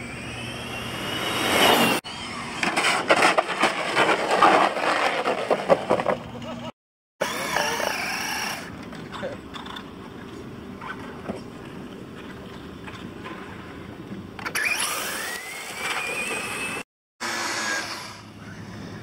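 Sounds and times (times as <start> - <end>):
toy car motor whining: 0.0 - 2.8, 7.2 - 9.4, 14.4 - 18.7
tyres scrabbling on asphalt: 2.8 - 6.7.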